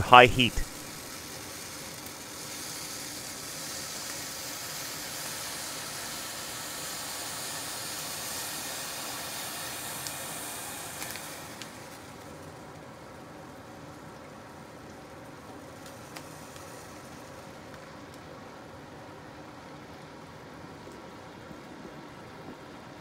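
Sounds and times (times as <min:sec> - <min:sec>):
water sizzling in hot pot: 0:00.8 - 0:21.9
faint ticks: 0:15.8 - 0:18.2.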